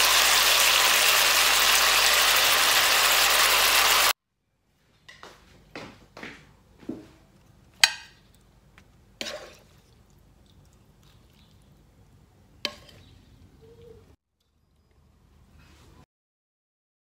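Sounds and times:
spatula scraping and knocking wok: 9.2 - 9.6, 12.6 - 13.3.

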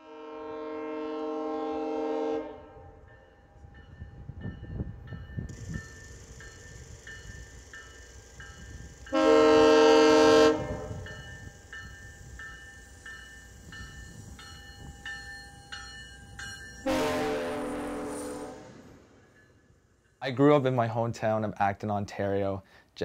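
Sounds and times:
train air horn blast: 0.0 - 2.9, 9.1 - 11.0, 16.8 - 19.1.

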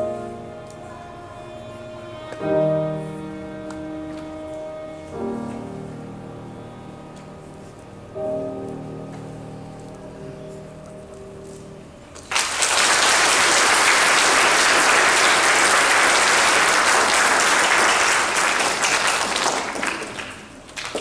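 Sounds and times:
viola and piano chord: 0.0 - 11.8
audience applause: 12.2 - 21.0.

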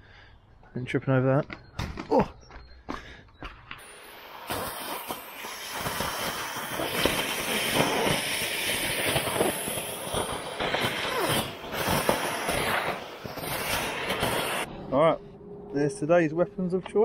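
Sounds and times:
vacuum suction rush: 3.8 - 15.9.

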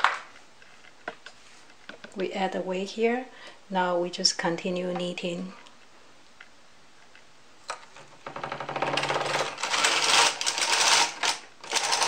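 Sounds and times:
knitting machine carriage clicking rattle: 8.3 - 12.0.

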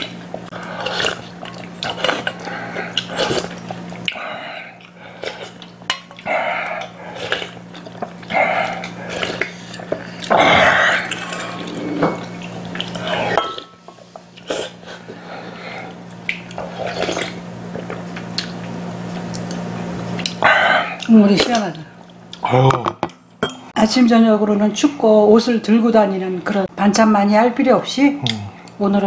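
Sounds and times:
slurping soup: 0.7 - 3.7.

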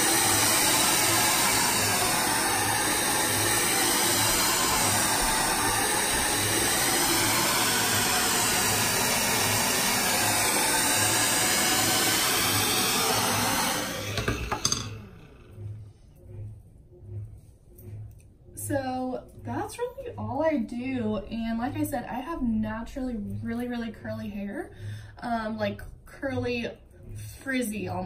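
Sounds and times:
hair dryer running: 0.0 - 15.8.

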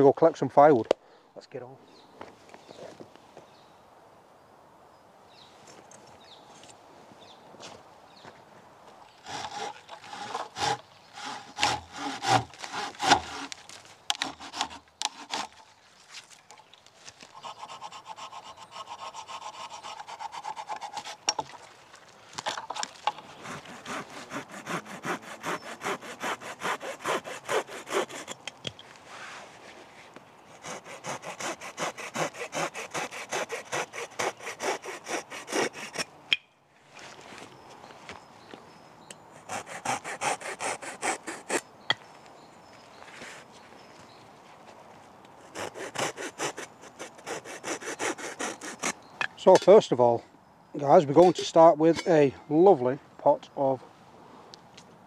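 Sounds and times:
hand saw cutting sticks: 9.2 - 15.7, 17.2 - 21.4, 22.6 - 28.6, 30.5 - 36.4, 39.4 - 41.6, 45.4 - 49.8.

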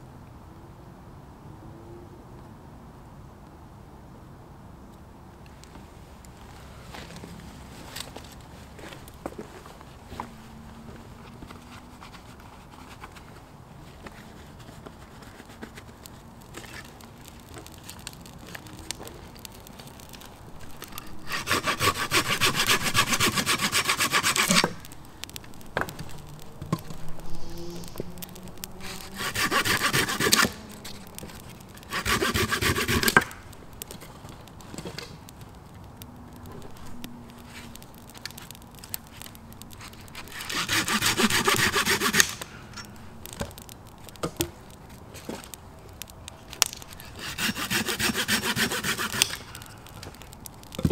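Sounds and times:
hand saw cutting wood: 21.2 - 24.9, 28.8 - 30.7, 31.9 - 33.4, 40.2 - 42.5, 47.0 - 49.5.

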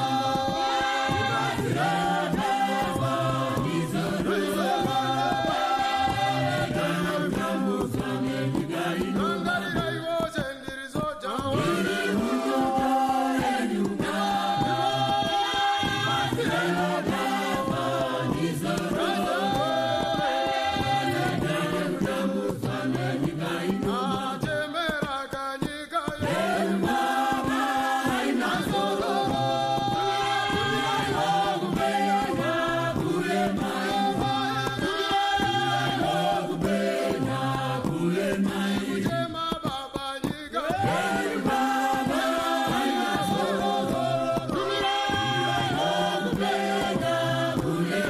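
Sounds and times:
group singing in harmony: 0.0 - 10.4, 11.2 - 48.0.

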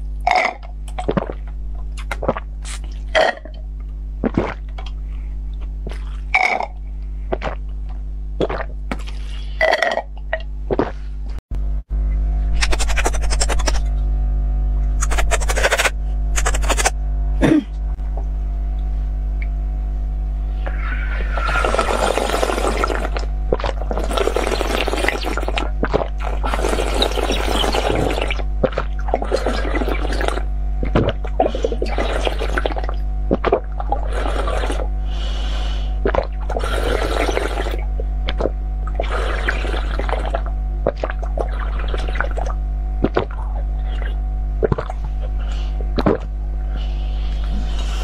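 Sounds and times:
low electrical hum: 0.0 - 48.0
slurping water from glass tube: 20.7 - 34.9, 36.0 - 45.0.

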